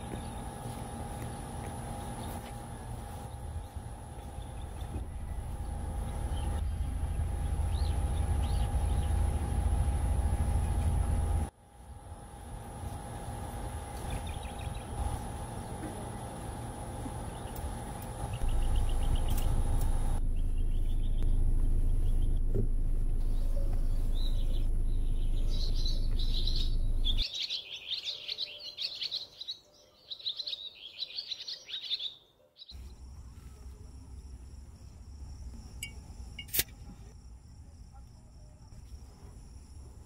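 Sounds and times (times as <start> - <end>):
birds chirping: 0.0 - 11.5, 13.8 - 33.6
crickets droning: 0.0 - 27.2, 32.7 - 40.0.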